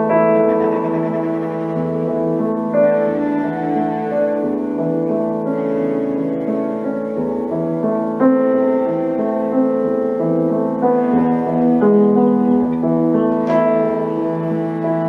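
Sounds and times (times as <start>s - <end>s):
cello notes: 0.0s - 15.0s
piano chords: 0.0s - 15.0s.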